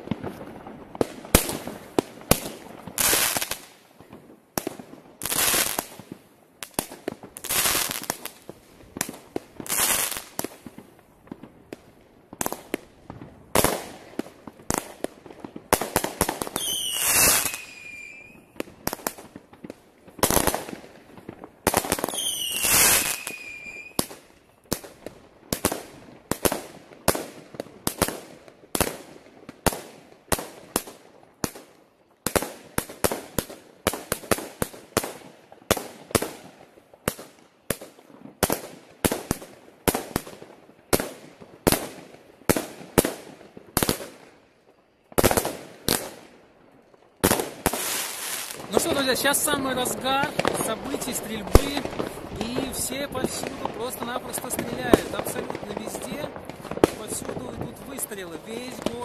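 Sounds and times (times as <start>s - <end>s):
fireworks bangs: 0.0s - 31.7s, 47.0s - 59.0s
falling firework whistle: 16.6s - 18.6s, 22.1s - 24.0s.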